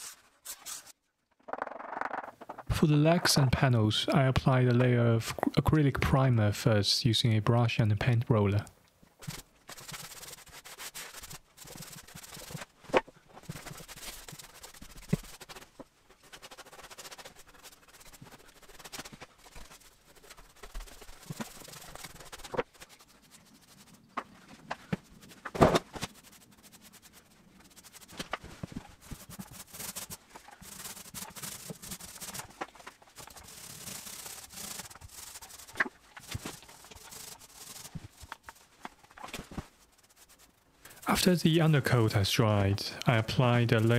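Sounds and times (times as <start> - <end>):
paintbrush rubbing strokes: 0.0 - 1.0, 9.2 - 25.4, 26.0 - 43.9.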